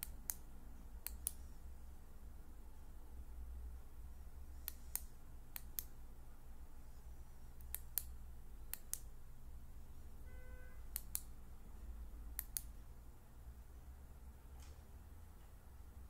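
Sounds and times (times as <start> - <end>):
flashlight switch clicking: 10.9 - 11.3, 12.4 - 12.7.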